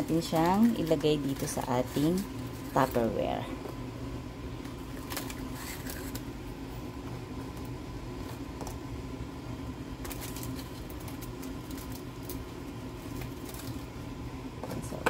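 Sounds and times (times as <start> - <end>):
crackers clicking and rustling: 0.0 - 3.2, 4.6 - 6.3, 9.9 - 14.0
low background hum: 0.0 - 15.0.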